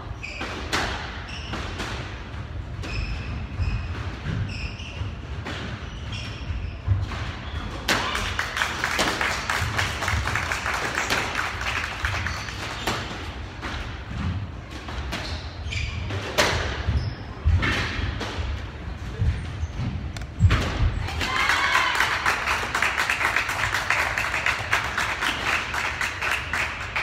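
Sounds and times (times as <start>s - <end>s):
squash ball hitting racquets and walls: 0.0s - 21.9s
shoes squeaking on wooden floor: 15.2s - 17.5s.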